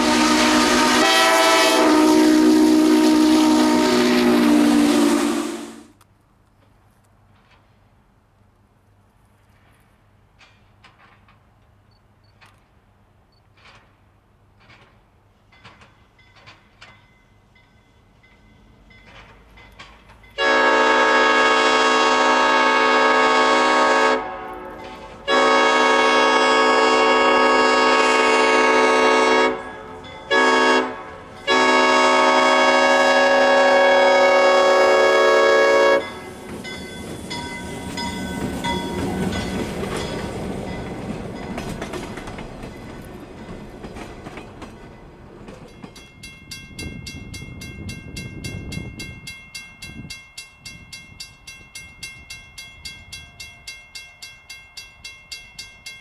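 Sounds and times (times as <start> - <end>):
locomotive horn blasts: 0.0 - 6.0, 20.4 - 36.3
train wheels rolling: 0.0 - 20.5, 24.5 - 26.0, 34.8 - 56.0.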